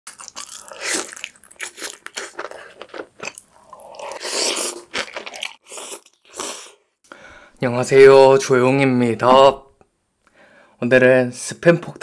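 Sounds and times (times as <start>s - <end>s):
crunchy biting: 0.1s - 6.8s.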